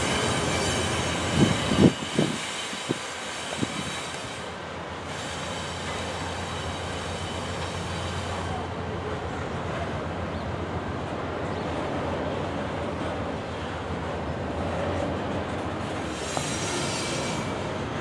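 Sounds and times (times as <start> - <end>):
train wheel squeal: 0.0 - 8.8, 15.0 - 18.0
freight train rumbling: 0.0 - 18.0.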